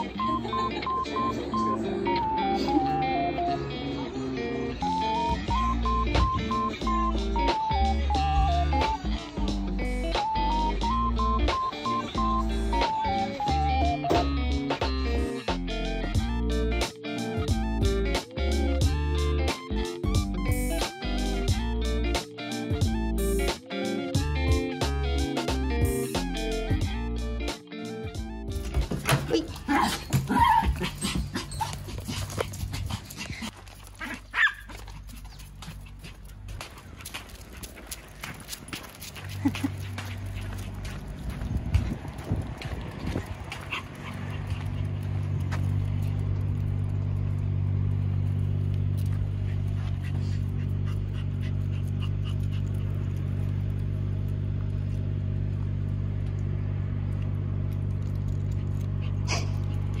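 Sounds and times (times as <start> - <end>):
dogs yipping and whining: 0.0 - 3.8, 28.5 - 36.2, 58.6 - 60.0
paws clicking and steps: 28.1 - 60.0
vehicle engine idling: 34.7 - 60.0.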